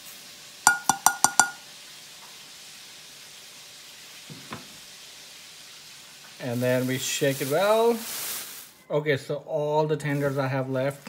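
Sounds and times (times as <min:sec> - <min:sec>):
ceramic plate tapping: 0:00.7 - 0:01.6.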